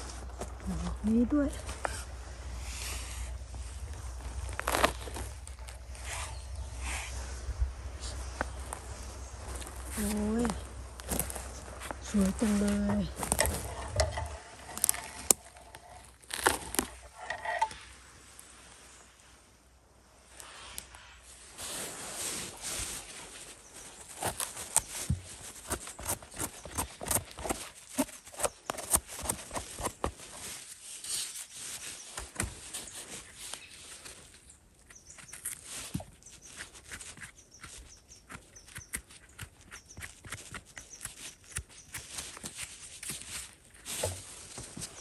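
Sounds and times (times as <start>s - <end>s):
footsteps through leaf litter: 2.7s - 6.5s, 8.0s - 17.0s.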